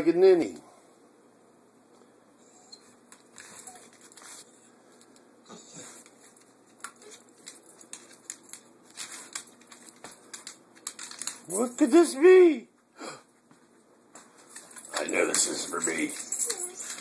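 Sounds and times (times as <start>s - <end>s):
dog claws clicking on wooden floor: 5.8s - 11.8s, 14.2s - 17.0s.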